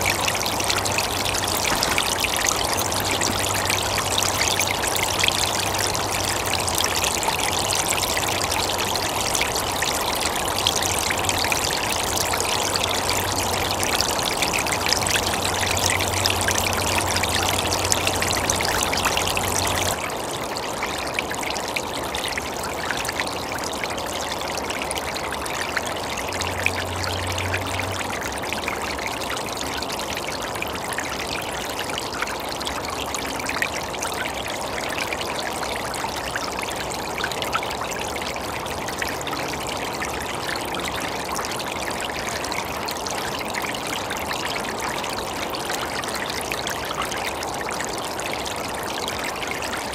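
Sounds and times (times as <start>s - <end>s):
stream trickling: 0.0s - 49.9s.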